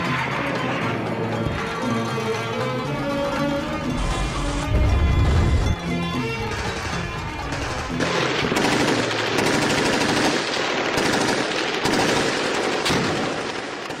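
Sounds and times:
music: 0:00.0 - 0:11.2
automatic machine-gun fire: 0:06.5 - 0:14.0.

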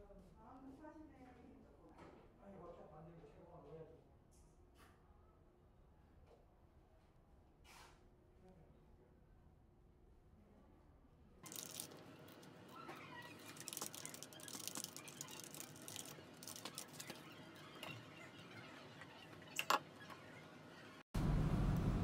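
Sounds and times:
paper rustling: 0:11.4 - 0:18.0.

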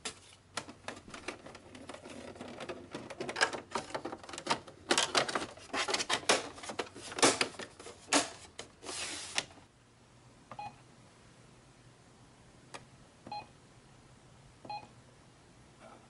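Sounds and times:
plastic printer parts clicking: 0:00.5 - 0:08.7
key-press beep: 0:10.5 - 0:10.8, 0:14.7 - 0:14.9.

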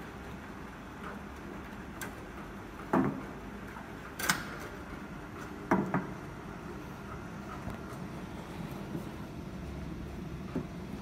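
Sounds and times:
sharp knocks and clatters: 0:02.8 - 0:03.3, 0:05.6 - 0:06.2.

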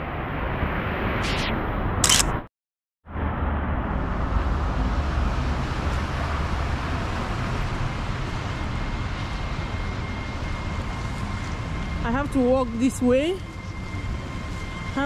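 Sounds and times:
traffic on wet street: 0:03.1 - 0:12.6.

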